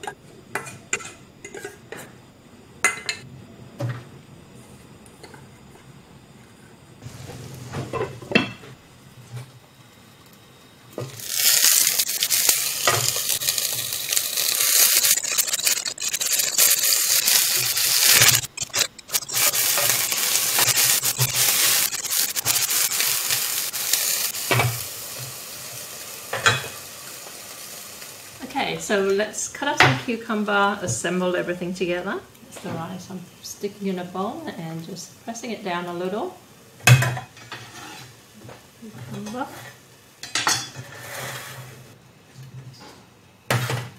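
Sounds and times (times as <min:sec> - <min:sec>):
batter sizzling in a wok: 0:07.0 - 0:42.0.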